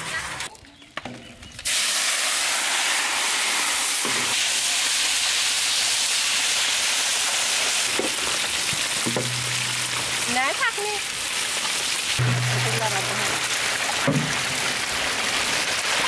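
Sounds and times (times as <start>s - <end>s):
fish sizzling in hot oil: 1.4s - 16.0s.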